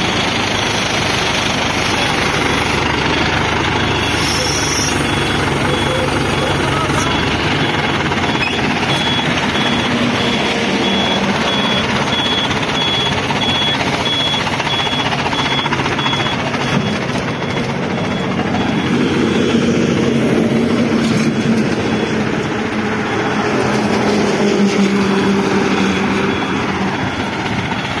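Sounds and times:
crane engine running loudly: 0:00.0 - 0:28.0
high beeper: 0:03.8 - 0:20.8.

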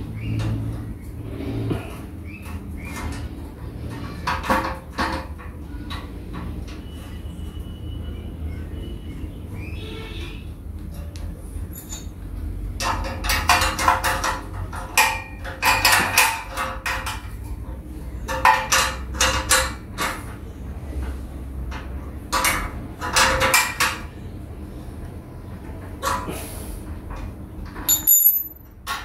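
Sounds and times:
metal tool clinking on nut: 0:27.9 - 0:28.7.

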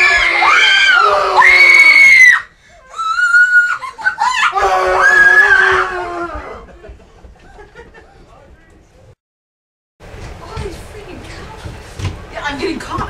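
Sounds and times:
people screaming: 0:00.0 - 0:06.7.

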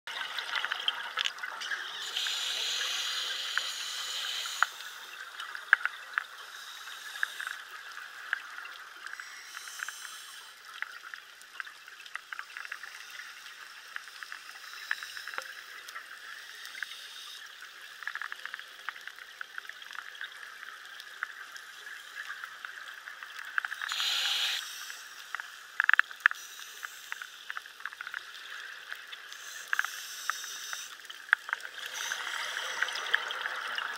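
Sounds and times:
underwater hiss: 0:01.9 - 0:05.2, 0:06.5 - 0:07.7, 0:09.1 - 0:10.6, 0:12.6 - 0:15.7, 0:23.7 - 0:27.7, 0:29.3 - 0:31.1, 0:31.8 - 0:33.5
clicks and crackles: 0:03.5 - 0:24.1, 0:24.9 - 0:33.9.

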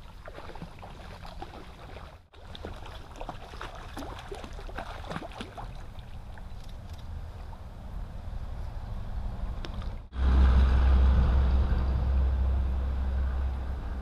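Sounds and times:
fish splashing in water: 0:00.0 - 0:07.0.

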